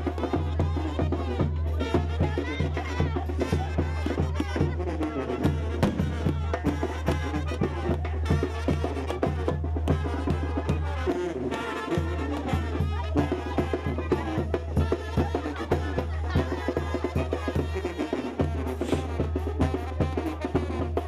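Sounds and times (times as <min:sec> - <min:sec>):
brass band music: 0:00.0 - 0:21.0
drums: 0:00.0 - 0:21.0.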